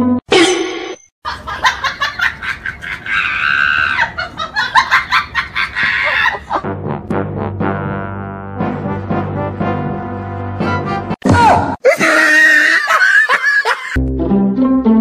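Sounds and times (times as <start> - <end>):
person laughing: 1.3 - 6.7, 11.8 - 14.0.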